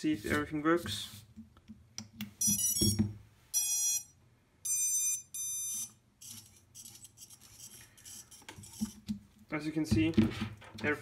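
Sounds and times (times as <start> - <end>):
drone motors beeping: 4.7 - 8.4.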